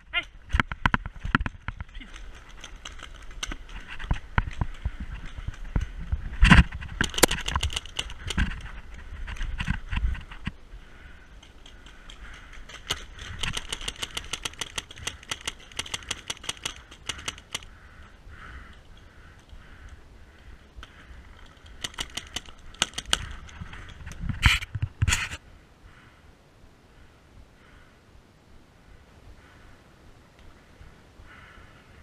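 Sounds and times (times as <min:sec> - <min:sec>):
paintball markers firing: 0:11.6 - 0:17.7, 0:21.7 - 0:23.5.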